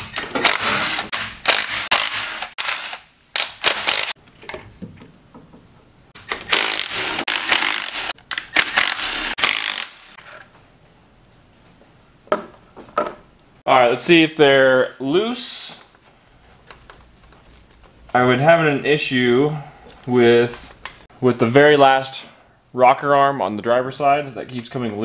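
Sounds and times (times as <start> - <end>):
cordless ratchet running: 6.5 - 10.2.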